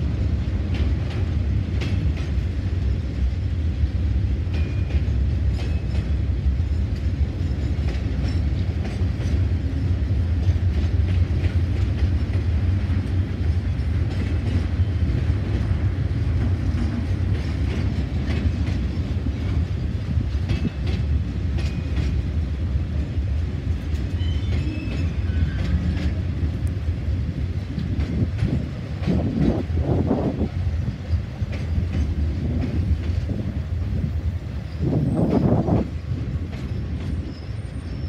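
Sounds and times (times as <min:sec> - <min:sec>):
train carriages rumbling past: 0:00.0 - 0:38.0
wheels clicking over rail joints: 0:04.3 - 0:38.0
high wheel squeals: 0:24.1 - 0:26.2, 0:36.6 - 0:38.0.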